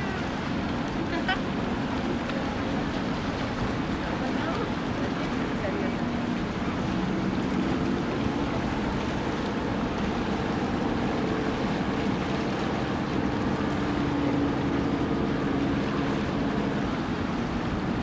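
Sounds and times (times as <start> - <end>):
motorboat engines humming: 0.0 - 18.0
sea wash: 0.0 - 18.0.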